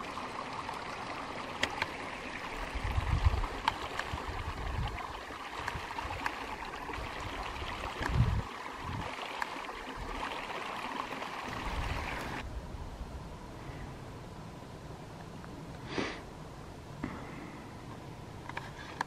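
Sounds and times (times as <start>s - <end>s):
wind buffeting microphone: 2.6s - 9.2s, 11.5s - 13.4s
outdoor rushing hiss: 15.8s - 16.4s.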